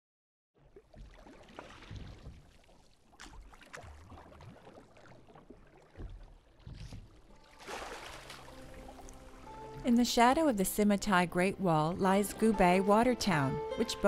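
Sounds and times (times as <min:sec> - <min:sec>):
oar clicks and knocks: 0:00.9 - 0:07.4.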